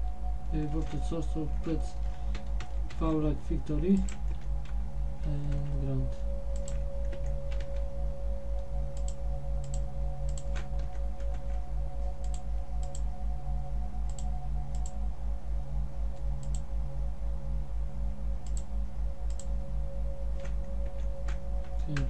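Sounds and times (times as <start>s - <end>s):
faint steady tones: 0.0s - 22.0s
throbbing low hum: 0.0s - 22.0s
computer mouse clicking: 6.6s - 7.8s, 9.0s - 11.6s, 12.2s - 13.0s, 14.1s - 15.0s, 16.4s - 16.6s, 18.4s - 18.7s, 19.3s - 19.5s.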